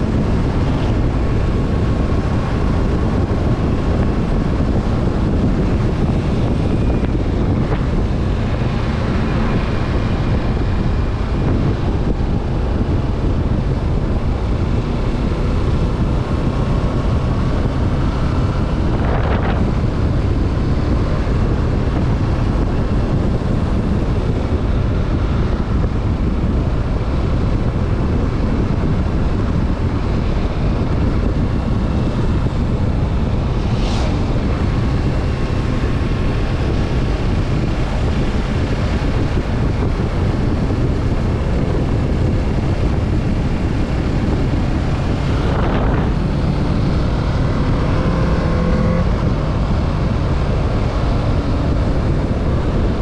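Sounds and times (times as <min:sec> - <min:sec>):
motorcycle engine running: 0:00.0 - 0:53.0
wind rushing over microphone: 0:00.0 - 0:53.0
brief swoosh: 0:33.6 - 0:34.4.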